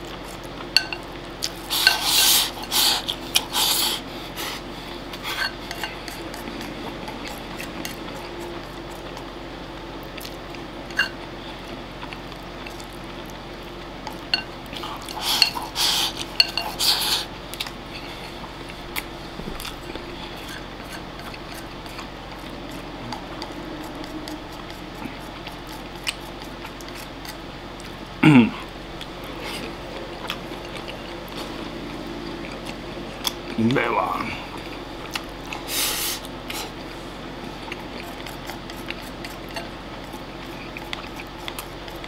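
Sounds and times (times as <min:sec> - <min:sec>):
chopsticks scraping ceramic bowl: 0:00.8 - 0:03.6, 0:05.2 - 0:09.0, 0:14.3 - 0:17.3, 0:19.7 - 0:27.5.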